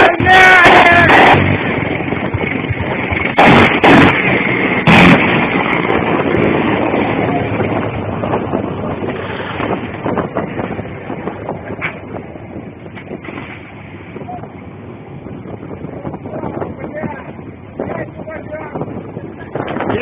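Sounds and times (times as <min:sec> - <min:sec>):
helicopter weapons fire blasts: 0:00.0 - 0:08.0
steady rushing noise: 0:00.0 - 0:20.0.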